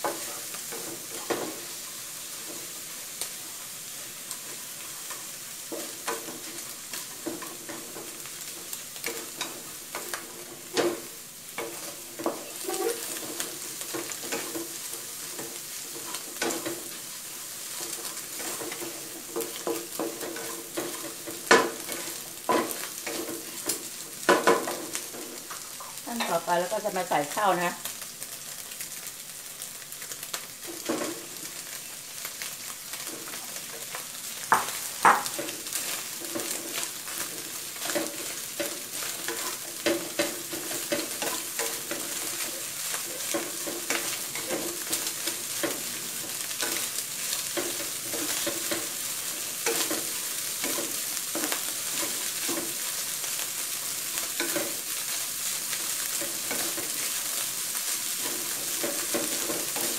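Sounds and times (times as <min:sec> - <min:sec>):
wooden spatula scraping: 0:00.0 - 0:26.6, 0:32.4 - 0:59.9
fried rice sizzling in a wok: 0:00.0 - 0:59.9.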